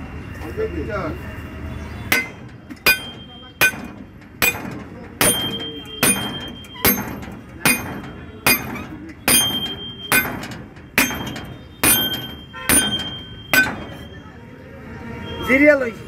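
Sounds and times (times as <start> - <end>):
metal-on-metal hammer strikes: 2.1 - 14.1.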